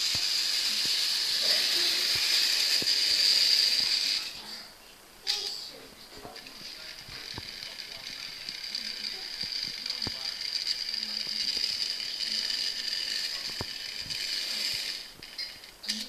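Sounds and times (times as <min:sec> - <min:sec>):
model train motor whirring: 0:00.0 - 0:04.4, 0:06.4 - 0:16.0.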